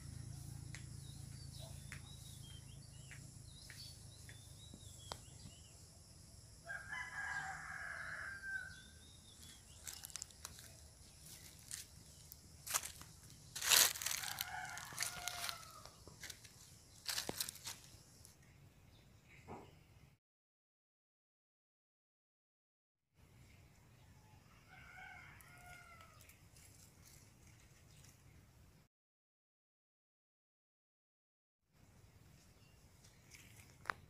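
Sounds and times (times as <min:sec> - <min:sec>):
rooster crowing: 0:06.6 - 0:09.0, 0:13.6 - 0:16.3, 0:24.2 - 0:26.2
dry leaves and branches crackling: 0:09.3 - 0:18.3, 0:25.5 - 0:28.2.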